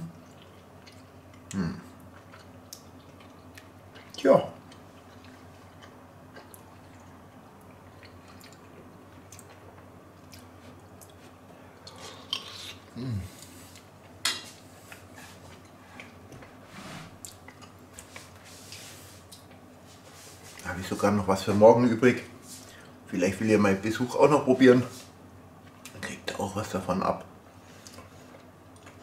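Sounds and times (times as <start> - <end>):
low steady hum: 0.0 - 29.0
quiet chewing: 0.1 - 16.6, 17.2 - 19.7, 27.7 - 29.0.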